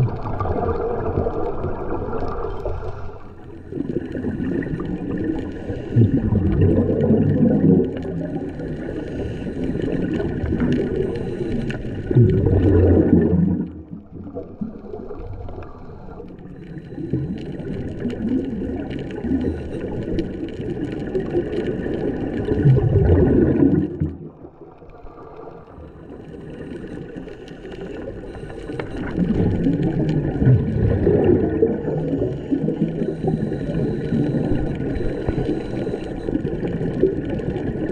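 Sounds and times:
diver's regulator bubbles gurgling: 0:00.0 - 0:37.9.

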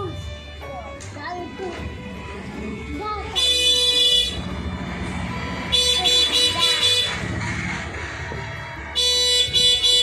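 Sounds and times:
high-pitched horn toots: 0:03.3 - 0:04.5, 0:05.6 - 0:07.4, 0:08.8 - 0:10.0.

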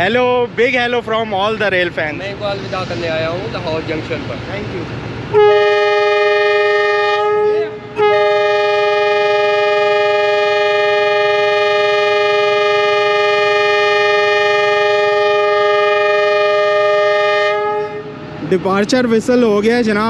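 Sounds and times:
train air horn blasts: 0:05.3 - 0:18.4.

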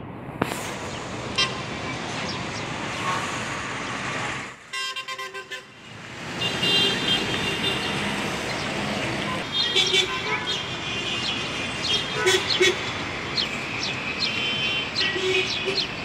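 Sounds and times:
road traffic noise: 0:00.0 - 0:16.0
car horns tooting: 0:04.7 - 0:08.3, 0:09.1 - 0:13.0, 0:14.2 - 0:16.0.

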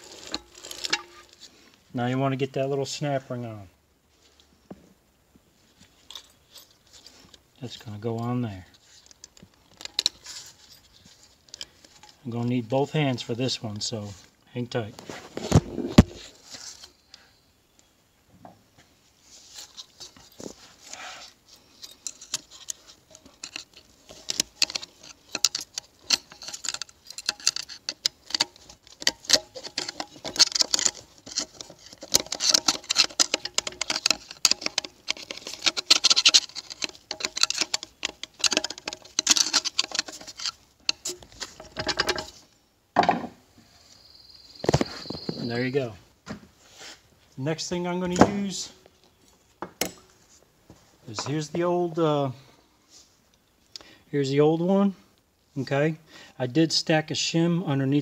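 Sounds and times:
small metal clicks and scrapes: 0:00.0 - 0:01.5, 0:05.8 - 0:07.4, 0:08.1 - 0:12.3, 0:19.5 - 0:42.6.

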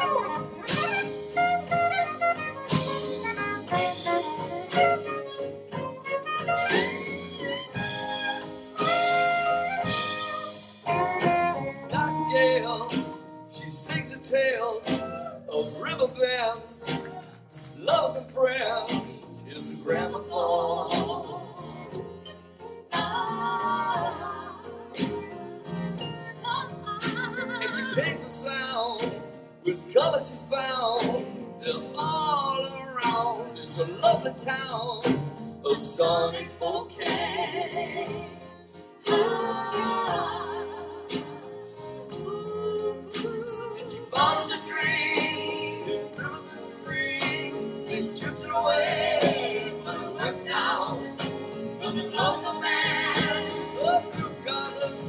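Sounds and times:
piano: 0:00.0 - 0:55.0
man singing: 0:11.9 - 0:17.0, 0:17.8 - 0:21.4, 0:27.6 - 0:37.2, 0:43.1 - 0:55.0.

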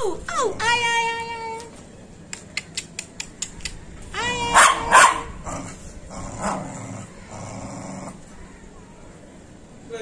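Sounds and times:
dog barking: 0:04.5 - 0:05.4.

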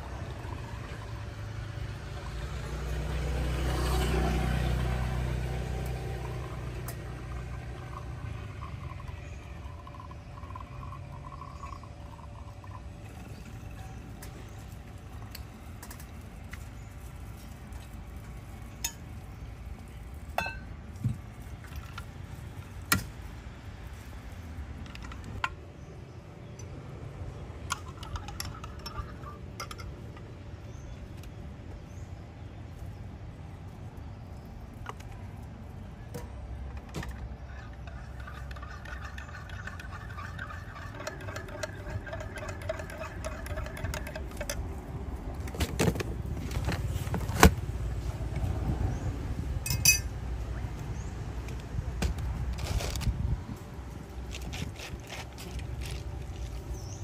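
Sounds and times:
low outdoor rumble: 0:00.0 - 0:57.0
metal spoon clinking on glass: 0:49.7 - 0:50.1.

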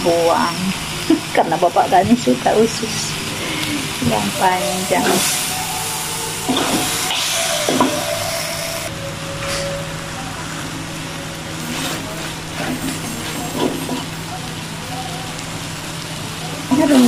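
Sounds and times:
chicken sizzling in wok: 0:00.0 - 0:17.0.

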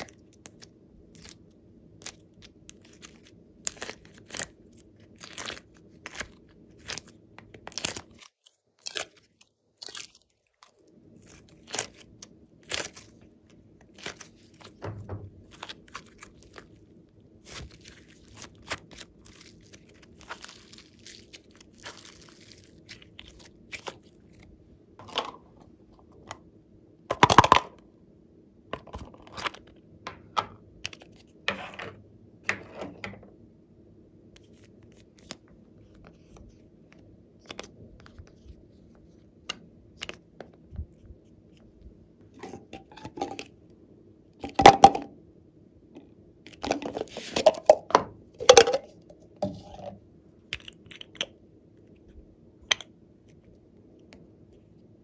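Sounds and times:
hands squishing slime: 0:00.0 - 0:24.5.

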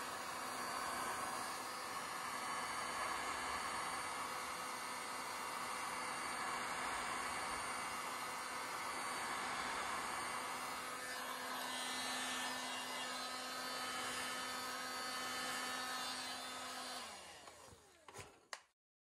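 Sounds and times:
heat gun fan humming: 0:00.0 - 0:18.6
fan winding down whine: 0:06.3 - 0:18.0.

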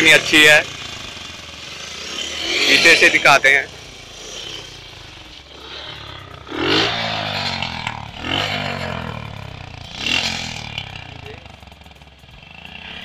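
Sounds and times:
motorcycle engine idling and revving: 0:00.0 - 0:13.0.

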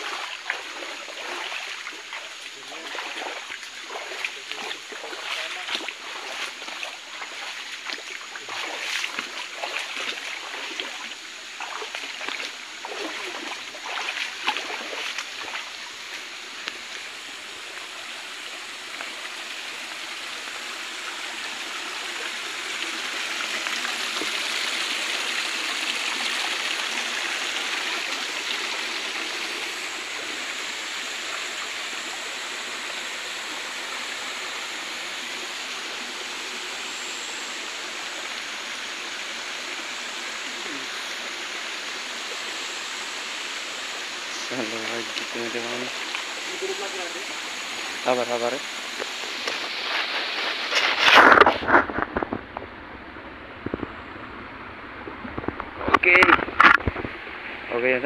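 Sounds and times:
splashing steps through water: 0:00.0 - 0:17.1, 0:44.4 - 0:52.4
river running over rocks: 0:00.0 - 0:58.0.

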